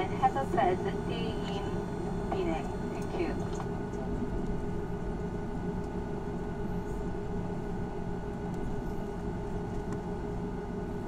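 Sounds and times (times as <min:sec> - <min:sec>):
steady tones: 0:00.0 - 0:03.5
jet engines idling roar: 0:00.0 - 0:11.0.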